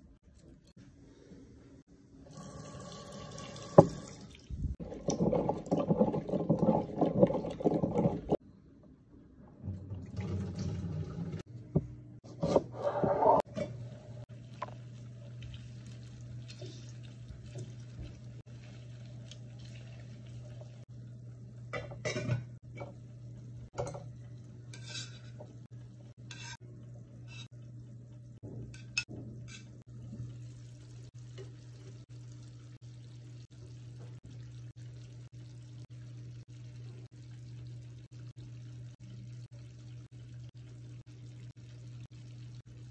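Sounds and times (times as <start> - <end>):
utensils clanking on metal pot: 21.8 - 22.9.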